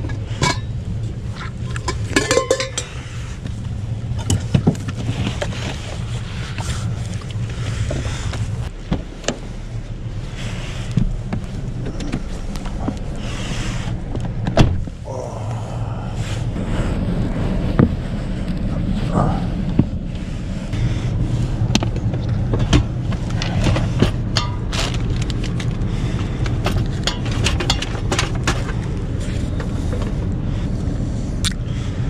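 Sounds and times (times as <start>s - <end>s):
car engine idling: 0.0s - 32.0s
plastic bottle crumpling: 24.7s - 25.8s.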